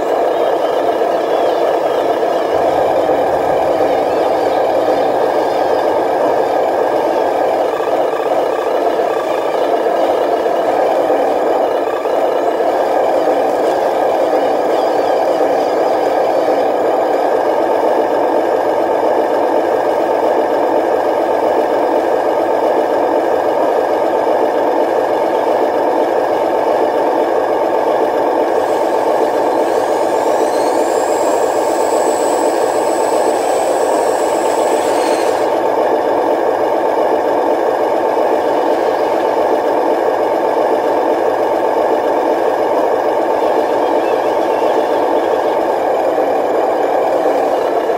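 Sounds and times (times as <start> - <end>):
high motor whine: 0.0 - 17.2
toy truck engine drone: 0.0 - 47.9.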